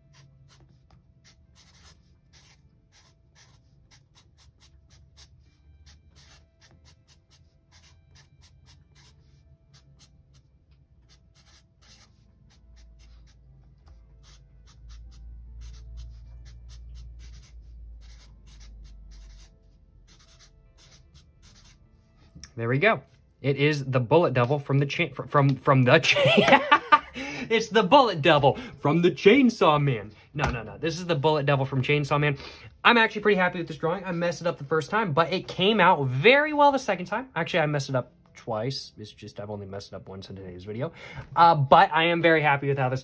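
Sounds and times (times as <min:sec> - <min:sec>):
marker writing on paper: 0:00.0 - 0:21.8.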